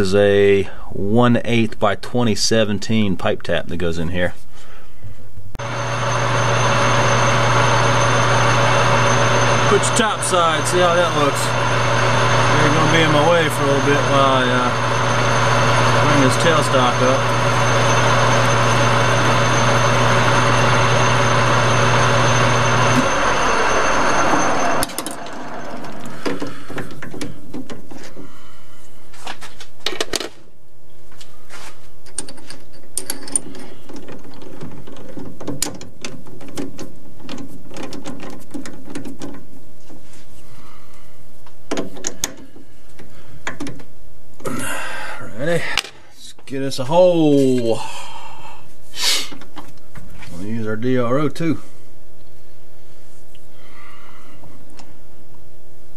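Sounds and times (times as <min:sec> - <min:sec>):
metal lathe running: 0:05.6 - 0:27.2.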